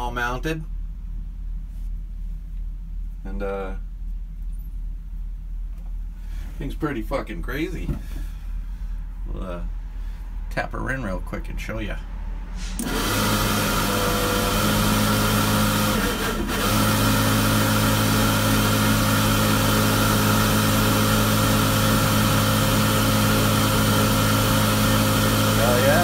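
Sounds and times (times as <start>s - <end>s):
duct fan humming: 0.0s - 26.0s
fan switching on: 12.6s - 14.2s.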